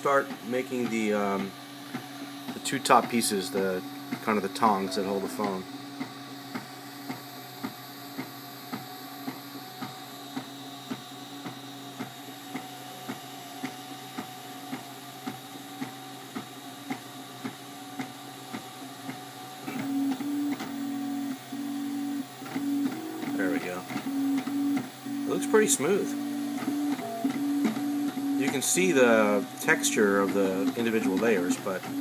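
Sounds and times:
printer fans and motors humming: 0:00.0 - 0:32.0
low motor tone pulsing: 0:20.6 - 0:30.0
print head ticking: 0:22.5 - 0:32.0.

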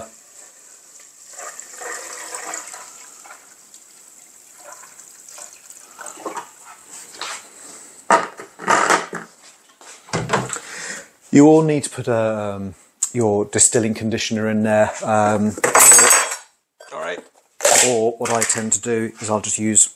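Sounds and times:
liquid pouring into metal boiler: 0:00.5 - 0:06.5.

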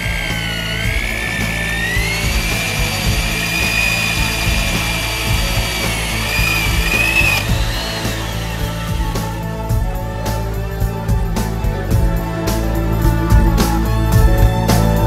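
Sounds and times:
electric drill boring into wood: 0:00.0 - 0:12.4
background music: 0:00.0 - 0:15.0.

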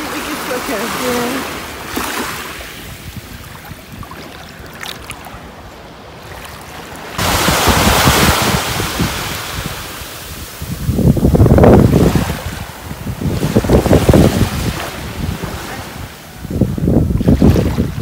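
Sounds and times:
small waves washing over sand: 0:00.0 - 0:18.0
surf: 0:00.0 - 0:18.0
wind rumbling on microphone: 0:00.0 - 0:18.0.

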